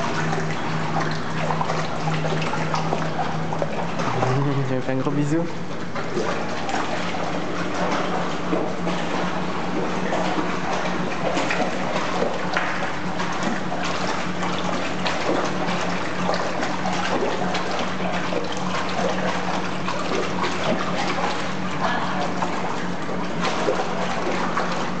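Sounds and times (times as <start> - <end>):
low hum: 0.0 - 14.1
water churning and splashing: 0.0 - 25.0.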